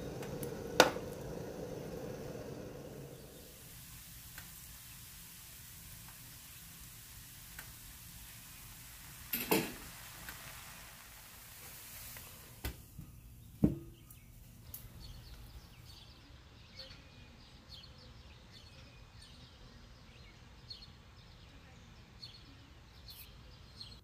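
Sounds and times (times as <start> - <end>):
birds chirping: 0.0 - 3.7, 13.0 - 24.0
kitchenware clicking and knocking: 9.4 - 9.8.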